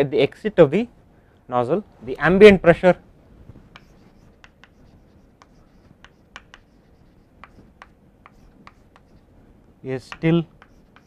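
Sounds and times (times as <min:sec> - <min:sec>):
chalk tapping and scratching: 0:03.7 - 0:09.3, 0:10.0 - 0:11.0.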